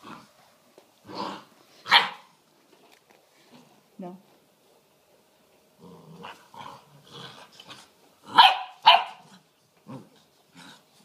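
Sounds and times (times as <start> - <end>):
sharp puppy barks: 1.9 - 2.3, 8.3 - 9.2
puppies play-fighting: 4.9 - 11.0.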